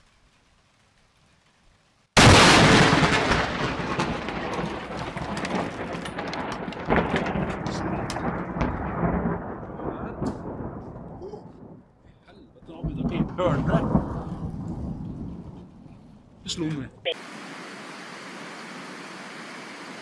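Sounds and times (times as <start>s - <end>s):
sharp thunder crackles: 2.2s - 16.5s
thunder rumbling: 2.2s - 17.0s.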